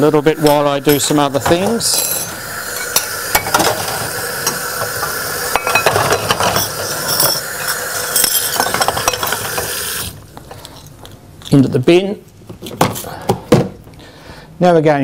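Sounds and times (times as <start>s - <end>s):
tap running: 0.4s - 10.7s
dishes clinking in a metal sink: 5.6s - 9.6s.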